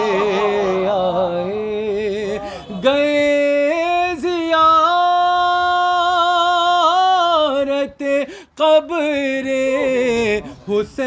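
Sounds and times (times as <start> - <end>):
man singing unaccompanied: 0.0 - 11.0
man breathing: 2.4 - 2.8, 8.2 - 8.6.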